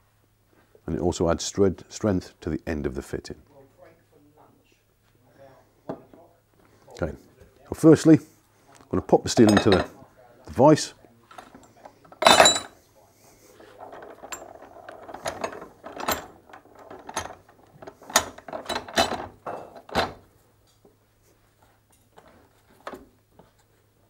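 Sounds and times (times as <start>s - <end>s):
metal clank of pipe in vise: 12.2s - 12.7s.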